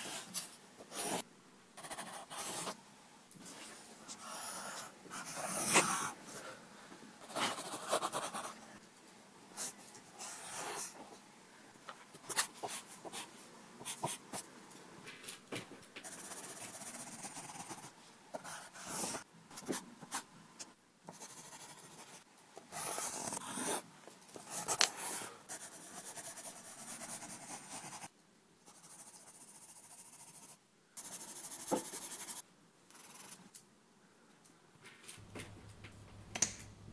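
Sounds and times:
pencil scratching on paper: 0.0s - 1.2s, 1.8s - 2.8s, 4.2s - 6.2s, 7.2s - 8.6s, 9.6s - 11.0s, 16.0s - 20.2s, 21.1s - 23.8s, 24.4s - 28.1s, 28.7s - 33.4s.

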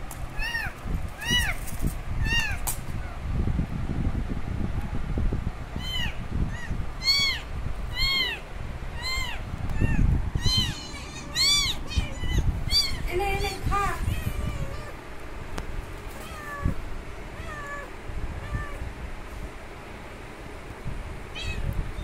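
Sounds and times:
low rumbling noise: 0.0s - 22.0s
kitten mewing: 5.8s - 15.0s, 17.4s - 18.9s, 21.3s - 22.0s.

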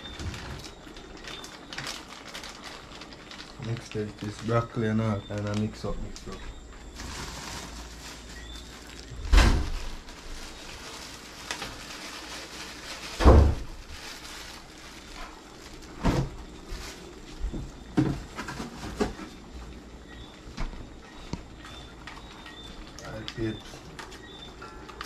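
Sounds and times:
plastic bag handling knocks: 9.1s - 10.3s, 13.0s - 14.2s, 15.9s - 19.2s
refrigerator door thumps: 9.3s - 9.8s, 13.2s - 13.7s.

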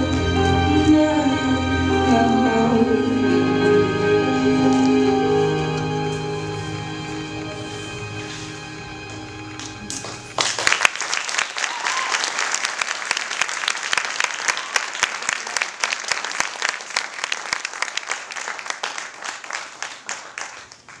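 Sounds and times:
audience applauding: 9.4s - 21.0s.

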